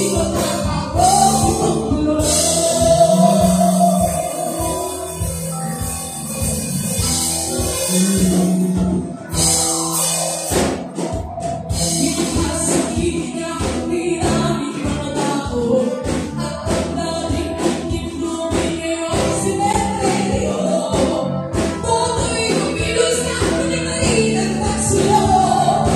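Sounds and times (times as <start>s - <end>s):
woman singing: 0.0s - 5.3s, 11.7s - 25.9s
drum kit: 0.0s - 25.9s
electric guitar: 0.0s - 25.9s.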